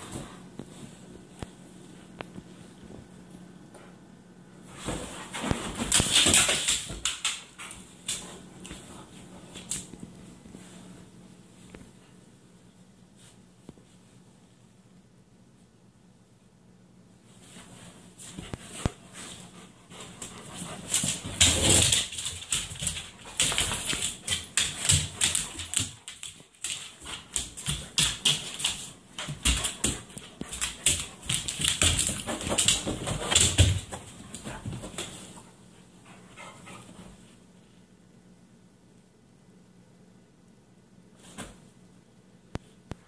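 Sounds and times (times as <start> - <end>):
dogs scuffling on cushions: 4.6 - 11.0, 17.3 - 35.6.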